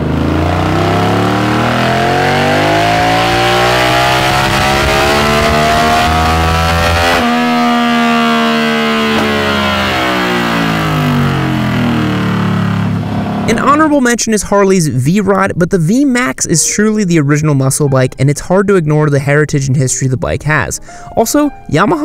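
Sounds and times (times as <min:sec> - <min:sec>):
motorcycle engine revving: 0:00.0 - 0:14.2.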